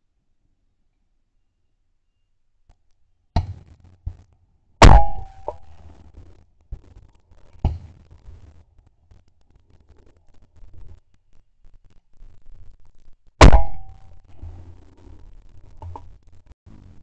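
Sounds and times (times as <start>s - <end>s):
faint sharp cracks: 2.7s - 17.0s
shotgun shot: 4.8s - 5.8s, 13.4s - 14.6s.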